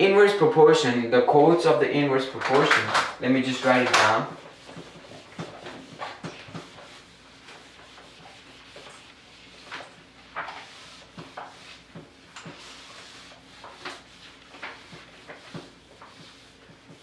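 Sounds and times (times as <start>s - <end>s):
eraser rubbing on whiteboard: 3.5s - 17.0s.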